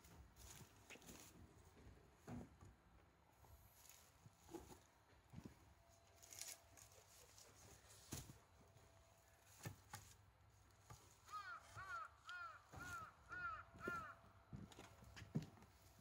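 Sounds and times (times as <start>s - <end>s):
bird calling: 11.2s - 14.2s.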